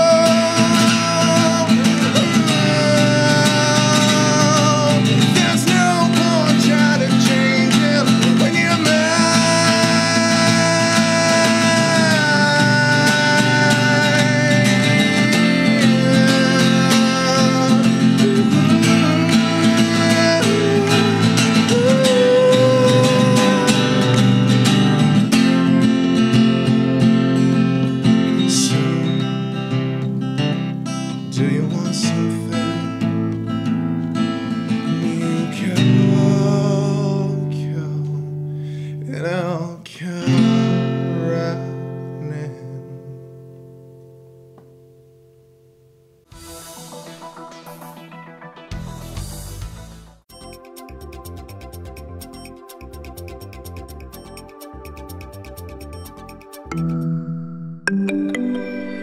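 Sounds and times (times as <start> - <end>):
person singing long notes: 0.0 - 25.0, 57.9 - 59.0
acoustic guitar strummed: 0.0 - 46.6.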